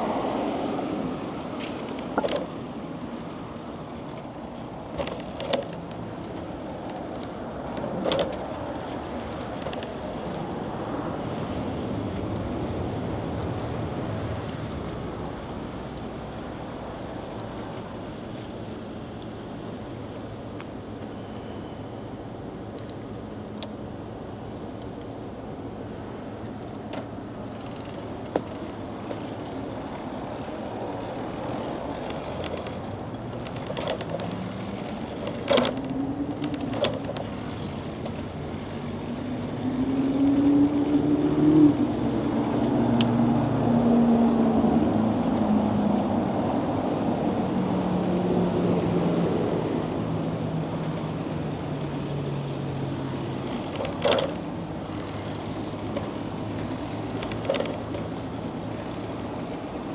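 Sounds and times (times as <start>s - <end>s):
passing engine drone: 0.0s - 4.9s, 37.3s - 59.8s
city street traffic: 0.0s - 59.9s.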